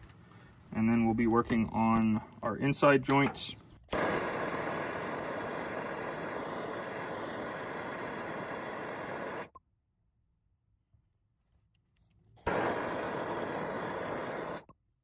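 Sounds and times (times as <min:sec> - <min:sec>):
gas torch flame hissing: 0:03.0 - 0:09.6, 0:12.4 - 0:14.7.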